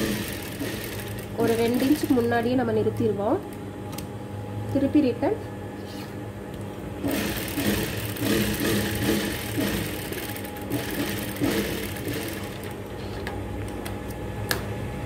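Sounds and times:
sewing machine stitching: 0:00.0 - 0:02.3, 0:07.0 - 0:12.8.

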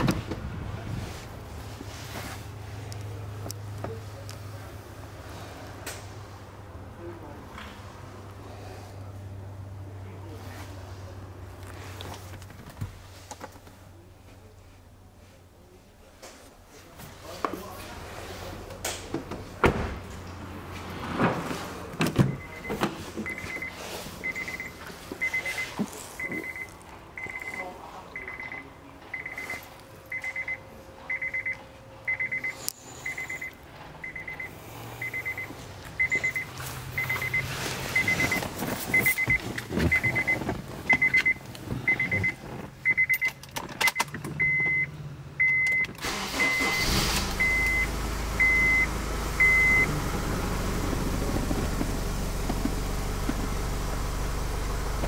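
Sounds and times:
car engine starting and idling: 0:17.9 - 0:27.5, 0:28.2 - 0:55.0
car warning chime beeping: 0:22.3 - 0:50.0.

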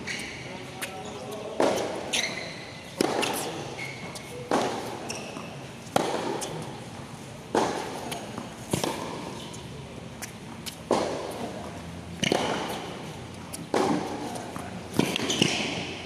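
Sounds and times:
shoe squeaks: 0:00.0 - 0:05.7, 0:15.1 - 0:15.9.

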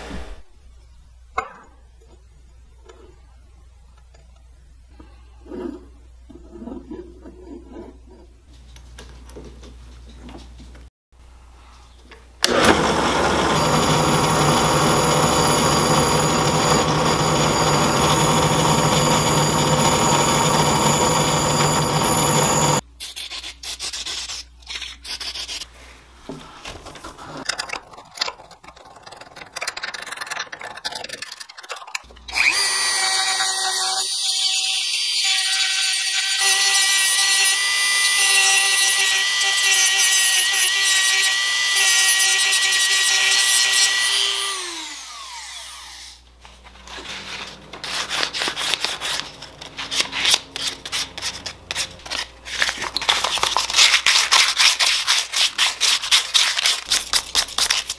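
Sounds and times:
drill press running: 0:12.4 - 0:22.8
rotary tool high whine: 0:12.4 - 0:22.8, 0:32.3 - 0:46.3.

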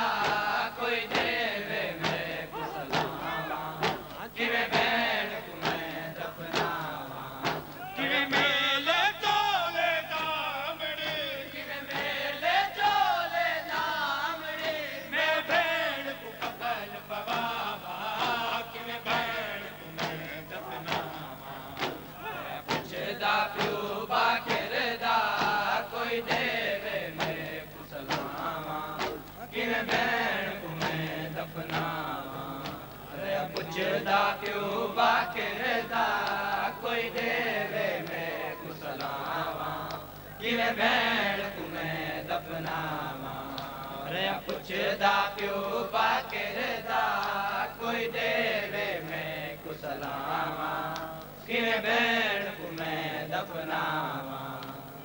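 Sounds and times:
men chanting a lament: 0:00.0 - 0:55.0
chest-beating slaps: 0:02.0 - 0:04.9, 0:05.6 - 0:08.5, 0:20.0 - 0:25.6, 0:27.2 - 0:31.1.

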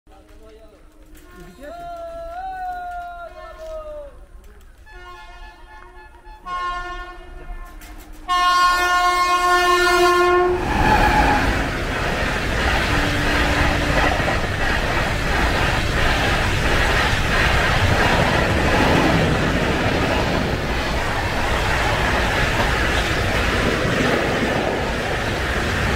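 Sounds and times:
train wheels on rails: 0:00.1 - 0:25.9
locomotive horn blasts: 0:04.8 - 0:10.7.

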